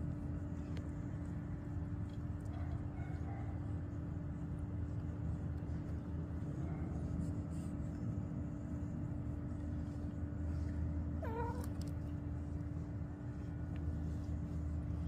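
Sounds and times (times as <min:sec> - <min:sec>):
steady low hum: 0:00.0 - 0:15.0
cat meowing: 0:11.2 - 0:11.8.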